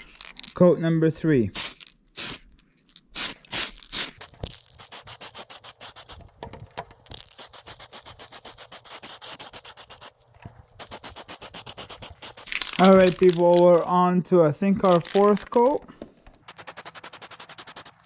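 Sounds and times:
spray can rattling: 0:01.6 - 0:02.5, 0:03.1 - 0:13.9, 0:14.8 - 0:18.0.

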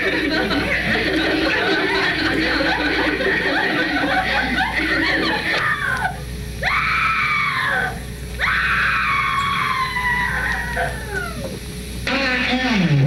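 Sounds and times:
woman screaming: 0:05.5 - 0:11.4.

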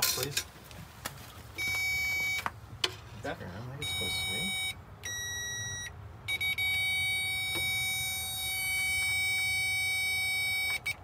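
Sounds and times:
electronic circuit tester beeping: 0:01.6 - 0:02.5, 0:03.8 - 0:11.0.

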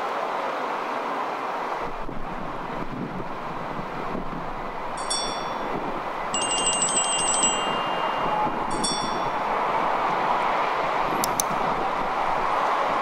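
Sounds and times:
outdoor background noise: 0:00.0 - 0:13.0
high chime tones: 0:05.0 - 0:09.6.

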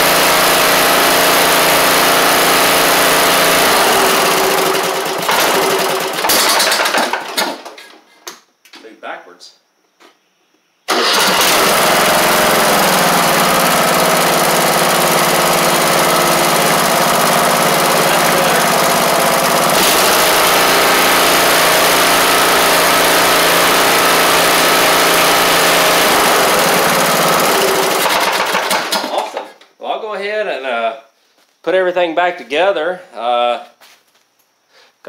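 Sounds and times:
lawn tractor engine running: 0:00.0 - 0:07.7, 0:10.9 - 0:29.5.

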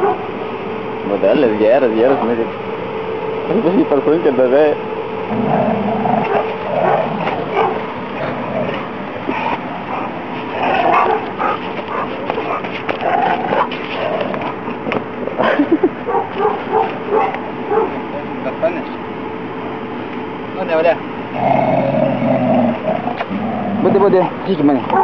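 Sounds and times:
dog barking and yipping: 0:00.0 - 0:00.3, 0:06.2 - 0:07.9, 0:10.8 - 0:12.7, 0:16.1 - 0:18.0.

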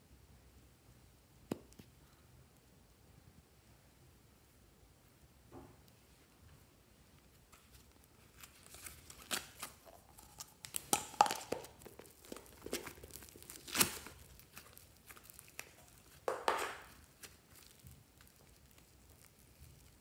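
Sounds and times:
slime crackling and tearing: 0:07.6 - 0:20.0
slime popping: 0:08.4 - 0:20.0.

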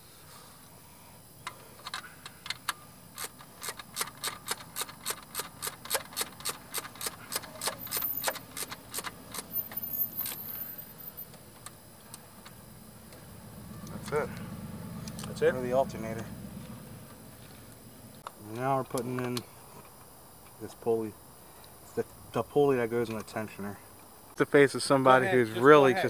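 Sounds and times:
ratchet clicking: 0:01.8 - 0:10.6.

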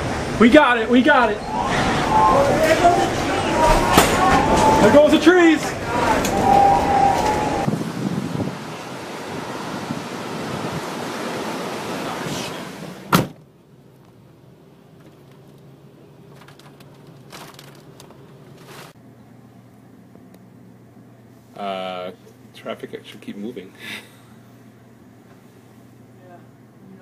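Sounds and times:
wind noise on microphone: 0:06.0 - 0:12.6
faint steady hum: 0:13.4 - 0:27.0.

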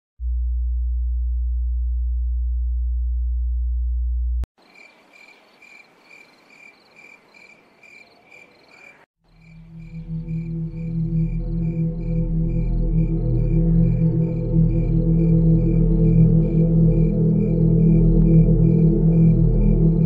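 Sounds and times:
crickets chirping: 0:04.6 - 0:20.0
low ambient music drone: 0:09.5 - 0:20.0
steady low hum: 0:09.5 - 0:20.0.

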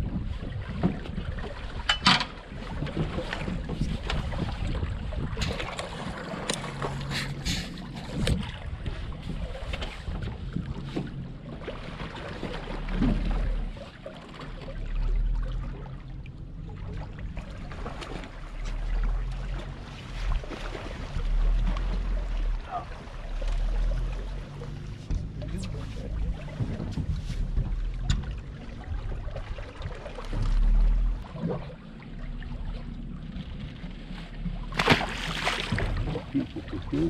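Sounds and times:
wind buffeting microphone: 0:00.0 - 0:11.5, 0:24.6 - 0:31.3.

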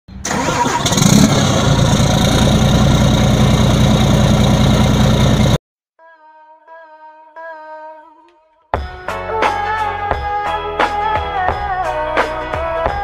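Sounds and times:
vehicle engine running: 0:00.3 - 0:05.6.

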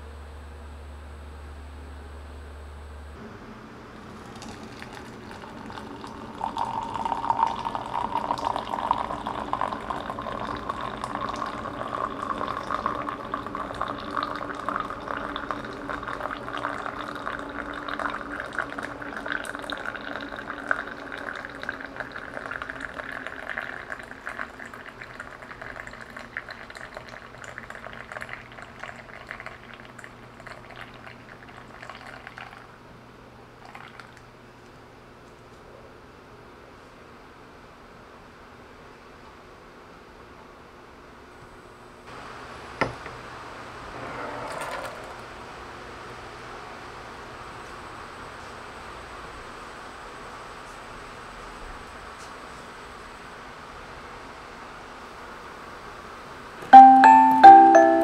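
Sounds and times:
water pouring into glass: 0:04.0 - 0:32.7, 0:33.6 - 0:34.2.

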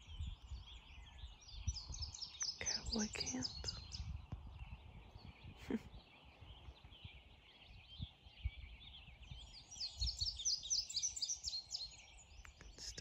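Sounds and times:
low microphone rumble: 0:00.0 - 0:10.4
birds singing: 0:00.0 - 0:13.0.

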